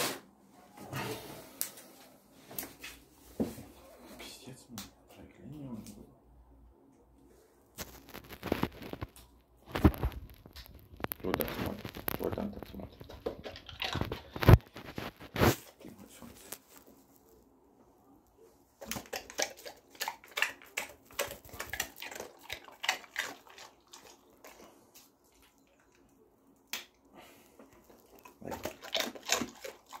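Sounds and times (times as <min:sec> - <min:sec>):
dog chewing crunches: 0:09.7 - 0:16.8, 0:18.8 - 0:26.1, 0:27.7 - 0:30.0.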